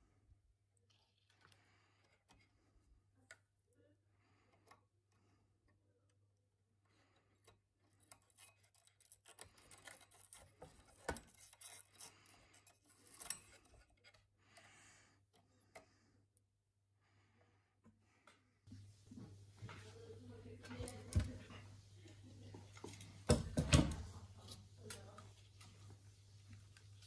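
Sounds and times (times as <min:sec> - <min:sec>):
wires and hand tool rubbing: 0:06.8 - 0:16.0.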